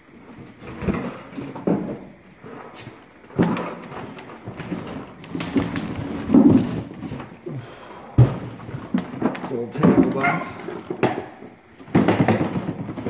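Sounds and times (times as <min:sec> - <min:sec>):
plastic rustling: 0:00.1 - 0:13.0
items knocking together: 0:02.8 - 0:07.6, 0:08.2 - 0:13.0.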